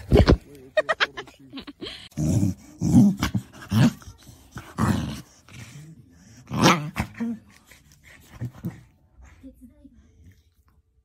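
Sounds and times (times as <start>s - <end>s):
dog growling: 2.1s - 7.6s.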